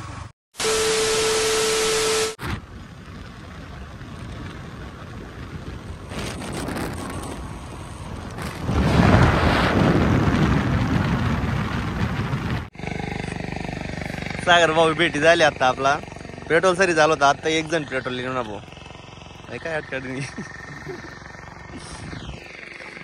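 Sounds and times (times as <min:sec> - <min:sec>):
static glitch hiss with beep: 0:00.6 - 0:02.4
wind buffeting microphone: 0:02.5 - 0:12.7.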